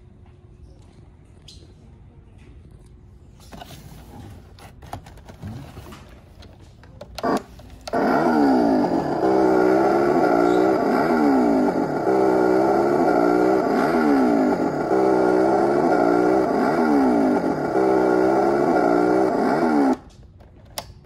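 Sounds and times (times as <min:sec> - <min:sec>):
toy chainsaw sound effect: 0:07.2 - 0:20.0.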